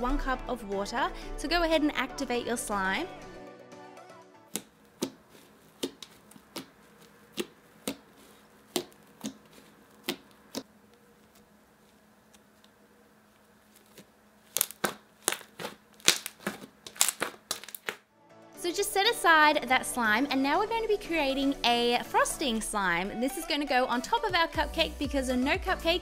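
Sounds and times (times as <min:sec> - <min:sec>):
hands squeezing slime: 0:13.6 - 0:18.0.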